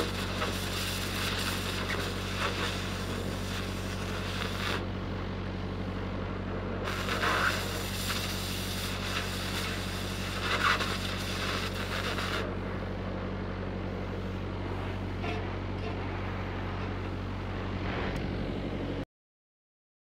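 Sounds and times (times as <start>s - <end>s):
cutting torch hissing: 0.0s - 4.9s, 6.8s - 12.5s
welder engine humming: 0.0s - 19.0s.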